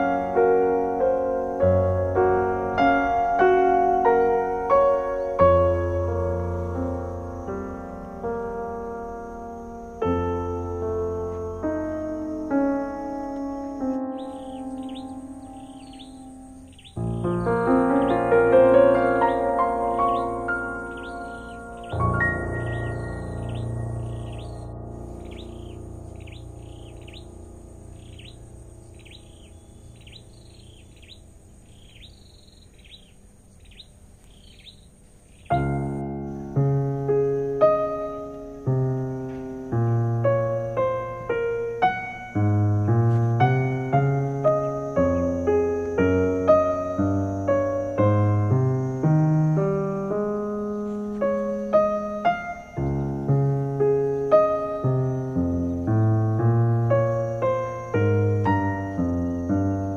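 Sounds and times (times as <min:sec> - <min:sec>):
piano notes: 0:00.0 - 0:32.2, 0:35.3 - 0:59.9
soft background music: 0:00.0 - 0:33.9, 0:35.3 - 0:59.9
bird chirps: 0:12.4 - 0:36.8, 0:50.2 - 0:59.9.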